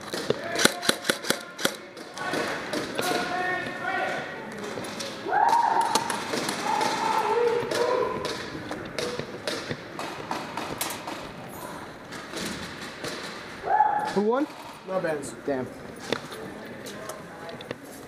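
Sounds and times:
voices calling out in a hall: 0:00.0 - 0:12.4, 0:13.4 - 0:18.0
people shouting: 0:05.2 - 0:08.4, 0:13.6 - 0:14.2.

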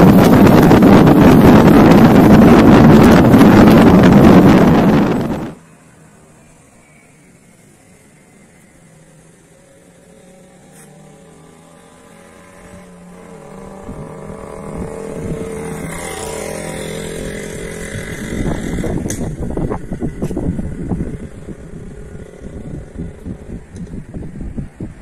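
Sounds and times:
wind buffeting microphone: 0:00.0 - 0:05.6, 0:13.4 - 0:25.0
vehicle engine passing: 0:00.0 - 0:24.8.

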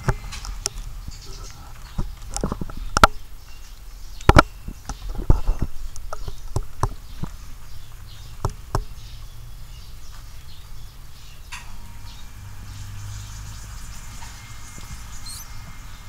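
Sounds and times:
rat moving on wood shavings: 0:12.9 - 0:16.0.

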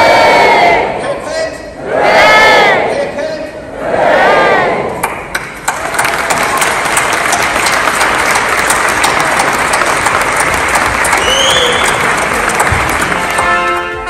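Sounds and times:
large crowd applauding: 0:05.0 - 0:14.0.

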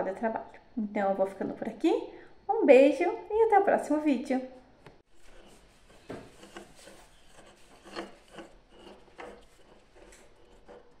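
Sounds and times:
hand tool scraping fabric: 0:05.1 - 0:11.0.

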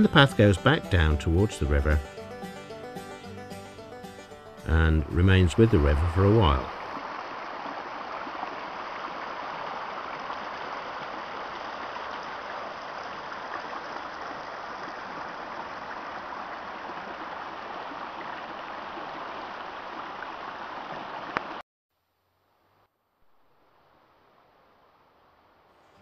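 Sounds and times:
river rushing over rocks: 0:06.3 - 0:21.6.

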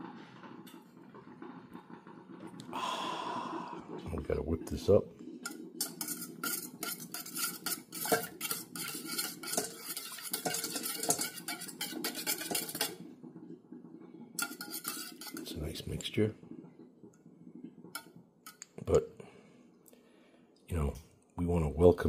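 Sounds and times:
wire whisk clicking against metal bowl: 0:05.9 - 0:12.9.

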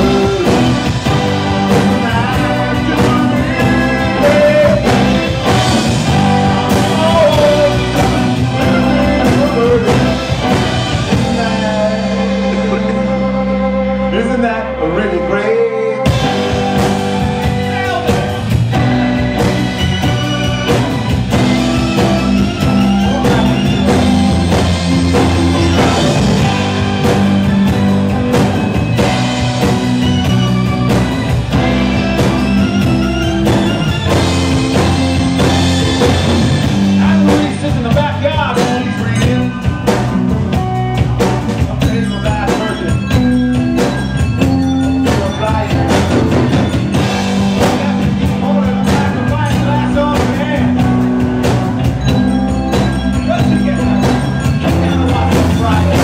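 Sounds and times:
drum kit: 0:00.0 - 0:14.5, 0:16.0 - 0:56.0
live rock band playing: 0:00.0 - 0:56.0.

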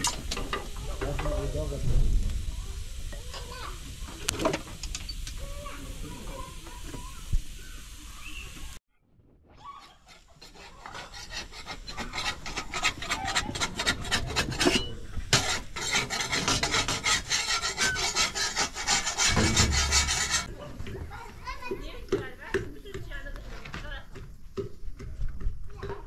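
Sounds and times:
quick scraping strokes: 0:09.8 - 0:20.5.

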